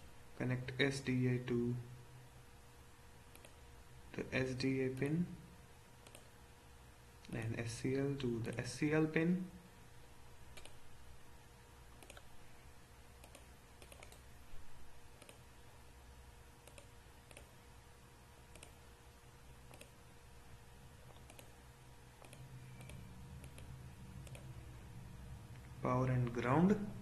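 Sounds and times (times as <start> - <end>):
low electrical hum: 0.0 - 27.0
computer mouse clicks: 3.3 - 3.6, 6.0 - 6.3, 10.5 - 10.8, 12.0 - 12.3, 13.2 - 14.3, 15.2 - 15.4, 16.6 - 17.5, 18.5 - 18.8, 19.7 - 20.0, 21.1 - 21.6, 22.2 - 24.5.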